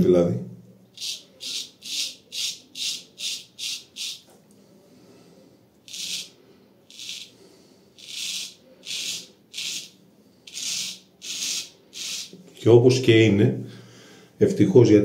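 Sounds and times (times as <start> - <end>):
razor scraping stubble: 5.9 - 7.4, 8.0 - 12.4.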